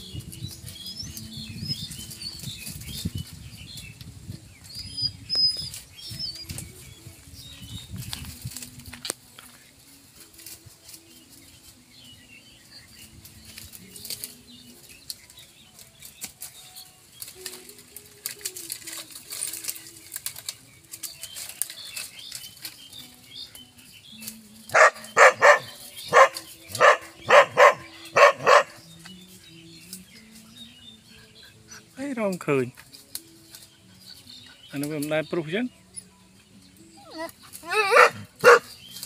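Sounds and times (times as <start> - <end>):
dry leaves rustling and crackling: 0.0 - 39.0
dog barking loudly: 24.7 - 28.8, 37.7 - 38.7.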